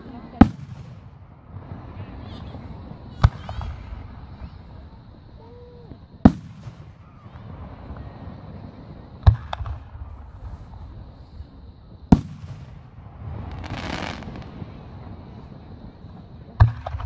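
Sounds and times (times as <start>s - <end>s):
small firework crack: 0.0s - 5.0s, 5.6s - 17.0s
firework shells bursting: 12.1s - 15.1s
hissing rush: 13.1s - 16.2s.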